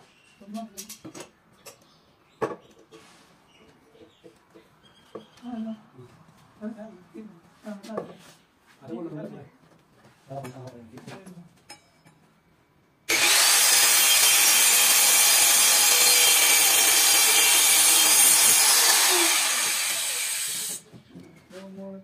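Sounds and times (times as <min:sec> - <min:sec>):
circular saw cutting board: 0:13.1 - 0:20.8.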